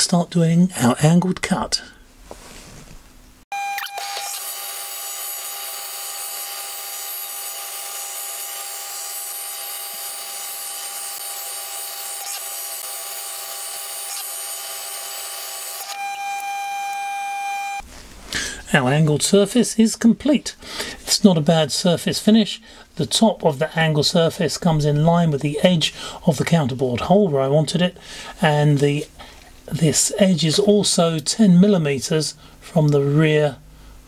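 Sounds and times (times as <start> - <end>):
high-pitched machine whine: 3.5 - 17.8.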